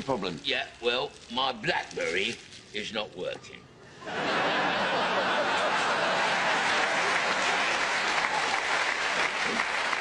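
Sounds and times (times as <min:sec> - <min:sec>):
audience applauding: 0:05.4 - 0:10.0.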